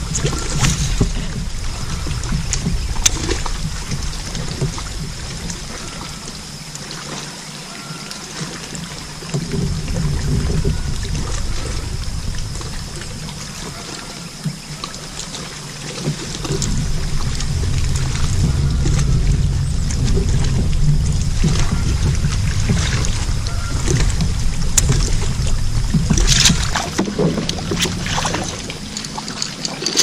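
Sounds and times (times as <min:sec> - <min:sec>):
wind rumble on microphone: 0:00.0 - 0:06.9, 0:08.6 - 0:30.0
water lapping against hull: 0:00.0 - 0:30.0
faint steady high tone: 0:16.3 - 0:26.8.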